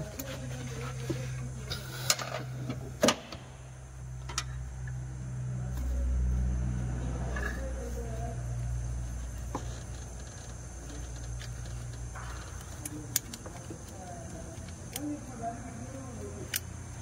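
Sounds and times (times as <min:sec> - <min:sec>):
steady low hum: 0:00.0 - 0:17.0
sharp metallic clicks of spanner: 0:09.8 - 0:15.2, 0:15.9 - 0:16.8.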